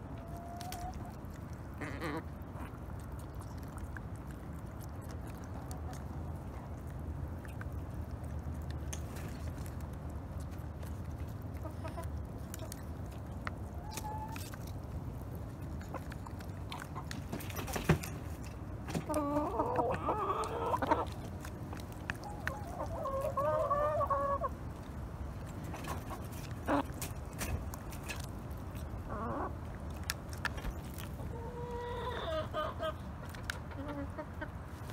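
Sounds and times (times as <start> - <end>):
hens clucking: 0.1 - 3.8, 11.2 - 13.0, 13.6 - 14.6, 15.4 - 24.9, 25.5 - 34.9
beaks pecking at feed dish: 0.2 - 32.6.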